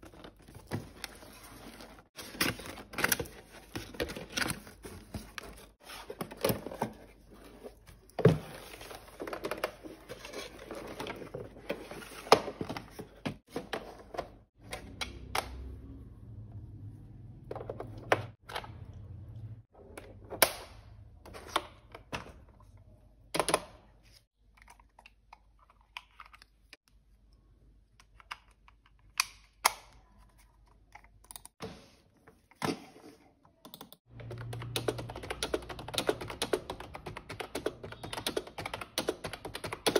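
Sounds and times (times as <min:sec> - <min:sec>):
fast typing on keyboard: 0:34.2 - 0:39.9.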